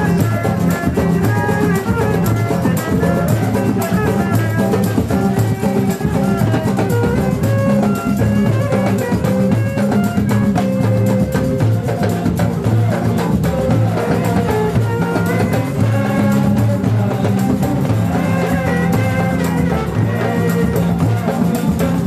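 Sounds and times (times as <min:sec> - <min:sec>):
held melodic instrument notes: 0:00.0 - 0:22.0
steady drum beat: 0:00.0 - 0:22.0.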